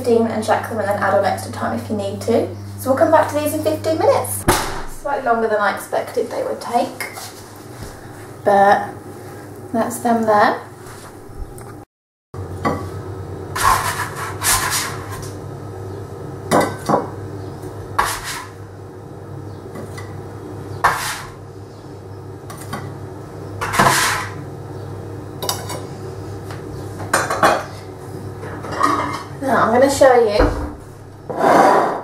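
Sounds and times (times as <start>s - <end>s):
spatula scraping metal tray: 13.6s - 15.4s, 18.0s - 18.6s, 20.8s - 21.4s, 23.6s - 24.4s, 31.3s - 32.0s.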